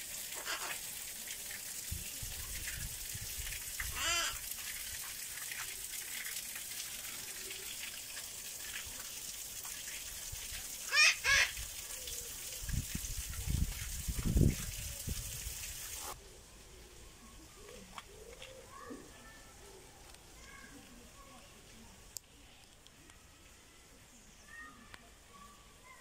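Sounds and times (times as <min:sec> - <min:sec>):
parakeets calling: 0:00.4 - 0:00.8, 0:03.9 - 0:04.4, 0:10.9 - 0:11.5.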